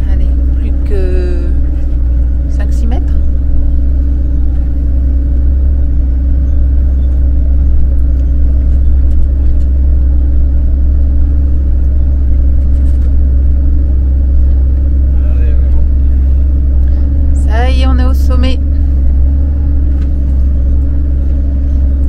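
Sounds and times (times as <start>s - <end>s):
constant hum: 0.0s - 22.0s
truck engine deep rumble: 0.0s - 22.0s.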